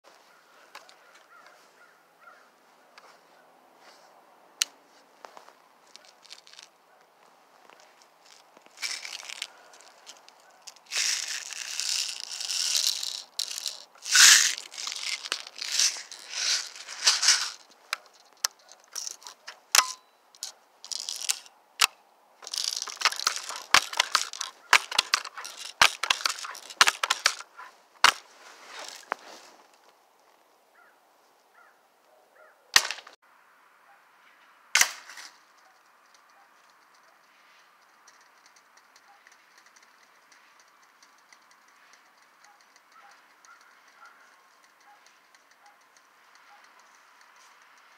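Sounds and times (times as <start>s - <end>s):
rustling: 0.1s - 21.5s, 22.4s - 30.5s, 35.0s - 47.9s
small metallic clicks and rattles: 5.9s - 6.7s, 7.8s - 28.2s, 34.8s - 47.9s.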